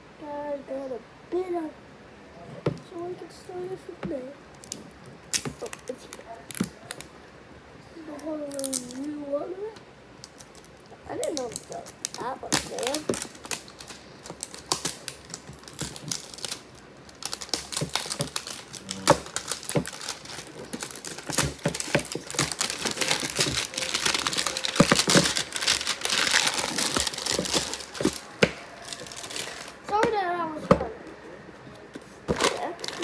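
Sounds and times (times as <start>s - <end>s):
plastic packaging crinkling: 8.1s - 9.2s, 10.2s - 30.0s, 32.2s - 33.0s.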